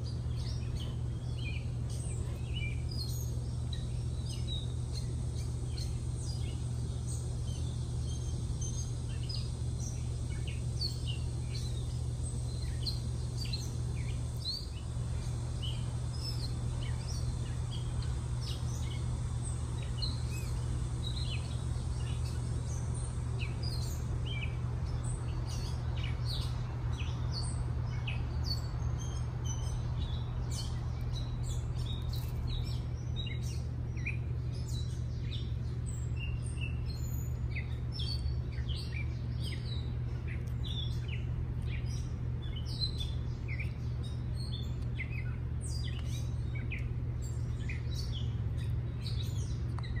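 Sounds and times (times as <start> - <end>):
songbirds chirping: 0.0 - 50.0
steady low hum: 0.0 - 50.0.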